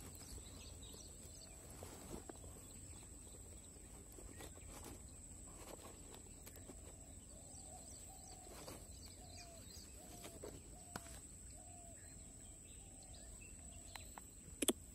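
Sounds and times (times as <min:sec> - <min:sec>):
faint bird calls: 0:00.0 - 0:14.9.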